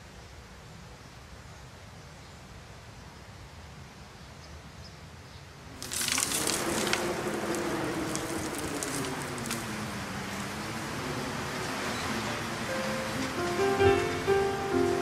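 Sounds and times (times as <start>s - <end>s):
faint hiss: 0.0s - 15.0s
wind-like noise with crackles: 0.0s - 15.0s
low held musical tones: 6.6s - 15.0s.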